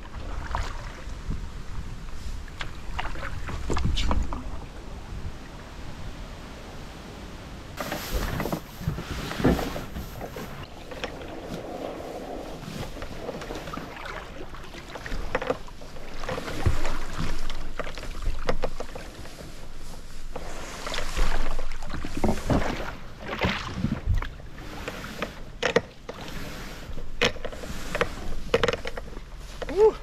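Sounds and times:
grass scraping along plastic board: 7.8 - 30.0.

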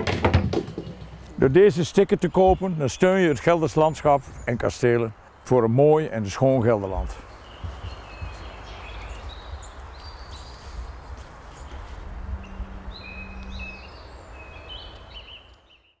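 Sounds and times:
birds chirping: 0.0 - 16.0
low outdoor rumble: 10.8 - 14.9.

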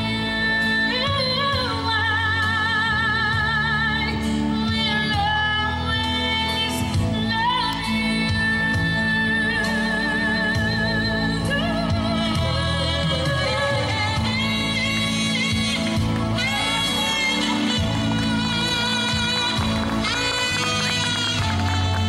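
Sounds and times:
amplified instrumental accompaniment: 0.0 - 22.0
woman singing with vibrato: 0.0 - 22.0.

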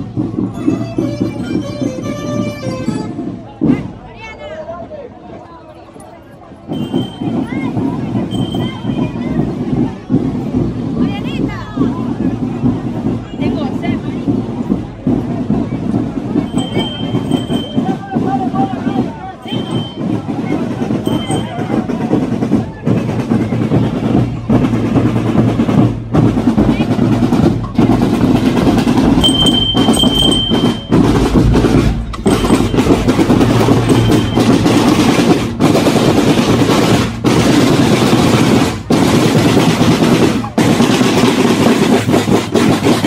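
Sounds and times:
snare drums playing marching cadence: 0.0 - 4.0, 6.7 - 43.0
high steady tone: 16.5 - 18.0, 28.8 - 35.5.

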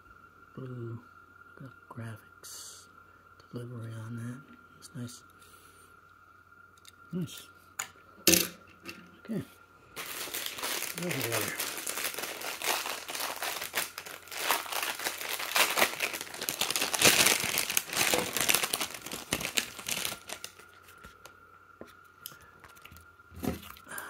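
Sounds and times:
plastic packaging crinkling: 10.0 - 21.4.

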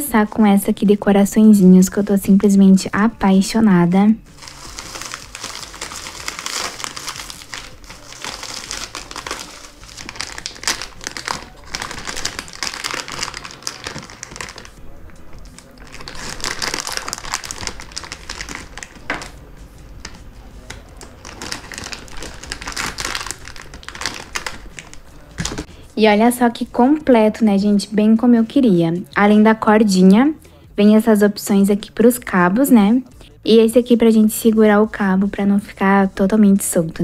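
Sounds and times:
plastic packaging crinkling: 4.3 - 19.4, 20.0 - 25.7.

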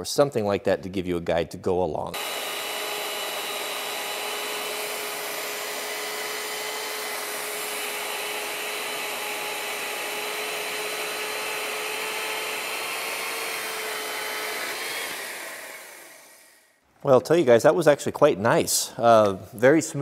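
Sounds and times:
chain cutting through wood: 2.2 - 15.8
saw motor whine: 2.2 - 16.6.

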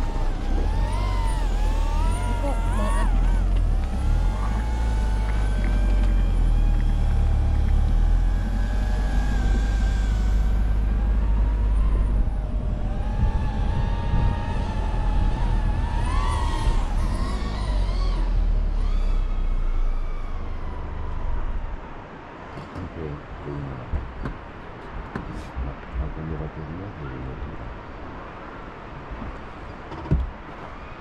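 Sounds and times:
whining tone: 0.0 - 22.9
vehicle rumble: 0.0 - 31.0
wind: 0.0 - 31.0.

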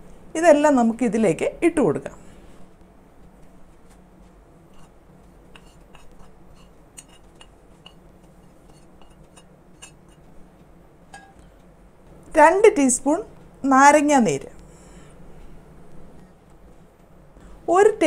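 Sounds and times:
metal spoon scraping ceramic plate: 4.7 - 10.3.

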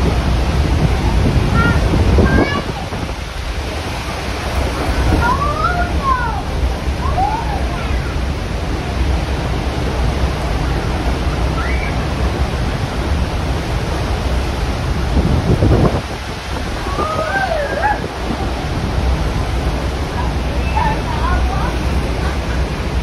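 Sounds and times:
waterfall roaring: 0.0 - 23.0
wind buffeting microphone: 0.0 - 23.0
faint people crying out: 16.8 - 18.4.

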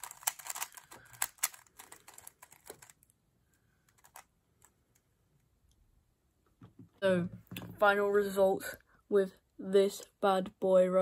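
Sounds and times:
speed cube clicking turns: 0.0 - 3.0.

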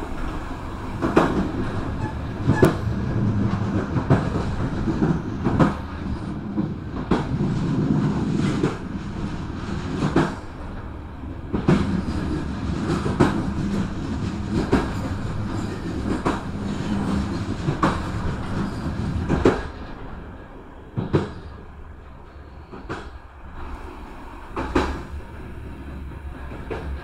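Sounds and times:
wheels clacking over rail joints: 0.0 - 10.8, 11.5 - 20.0
train rumbling: 0.0 - 27.0.

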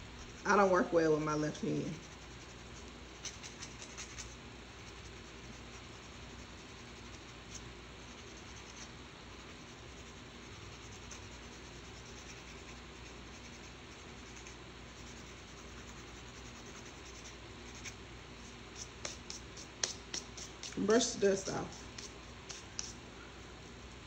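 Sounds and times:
nail file scraping fingernail: 2.1 - 5.6, 10.5 - 18.0, 18.8 - 20.8, 21.8 - 23.0
hands brushing rubs: 17.6 - 23.0.

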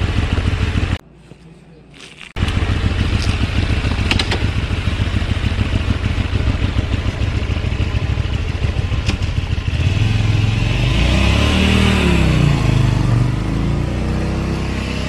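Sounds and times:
motorcycle engine idling: 0.0 - 1.0, 2.4 - 10.7.

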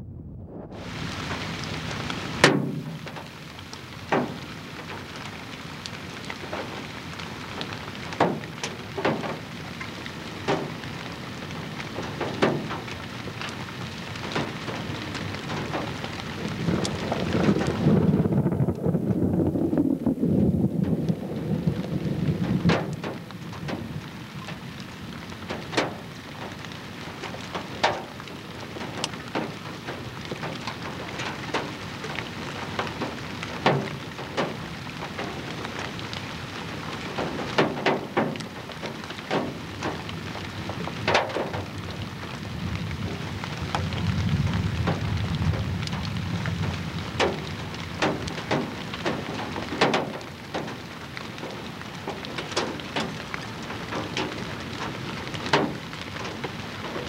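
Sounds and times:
low rumble: 0.0 - 3.2, 16.4 - 23.1
rain hissing on microphone: 0.0 - 57.0
sharp crackles and pops: 0.1 - 57.0.

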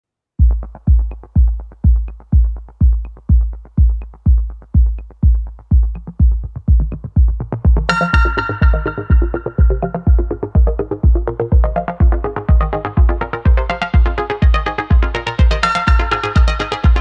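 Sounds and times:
drum machine kick: 0.4 - 17.0
bright synthesizer melody: 7.8 - 17.0.

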